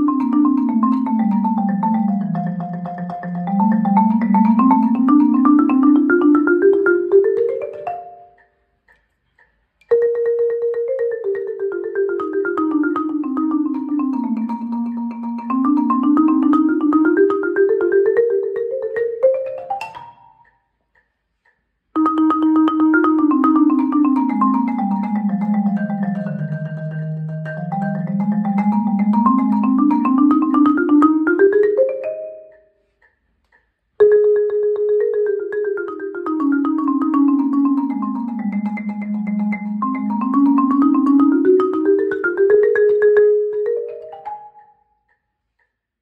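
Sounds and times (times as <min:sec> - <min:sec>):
marimba rolls: 0:00.0 - 0:08.4, 0:09.9 - 0:20.4, 0:22.0 - 0:32.6, 0:34.0 - 0:44.7.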